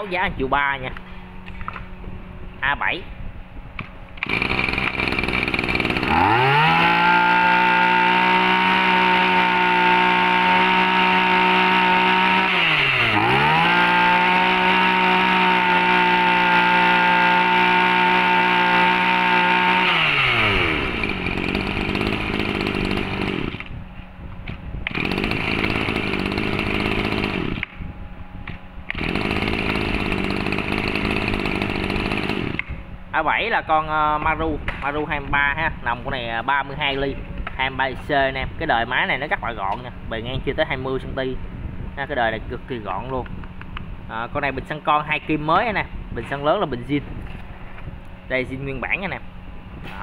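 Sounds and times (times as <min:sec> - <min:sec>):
brushcutter engine revving: 0:04.2 - 0:23.8, 0:24.9 - 0:27.7, 0:28.9 - 0:32.7.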